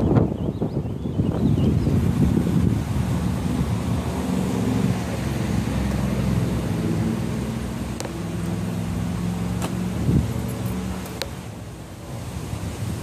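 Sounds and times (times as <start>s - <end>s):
wind noise on microphone: 0.0s - 13.0s
vehicle engine running: 2.3s - 12.1s.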